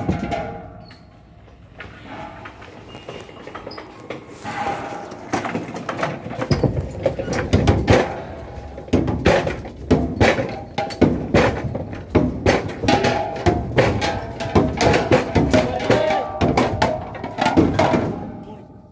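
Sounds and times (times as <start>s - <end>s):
metal gas cylinders clanging: 0.0s - 18.4s.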